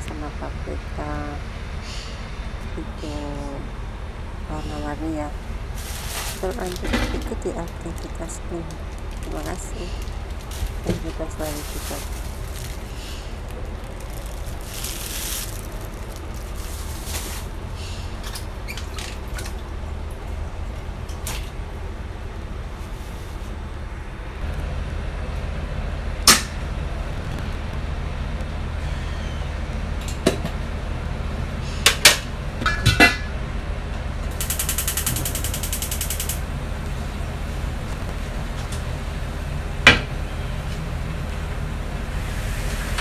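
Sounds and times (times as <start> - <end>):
low hum: 0.0 - 43.0
dishes and cookware clinking: 32.6 - 33.3
rapid high ticking: 34.4 - 36.4.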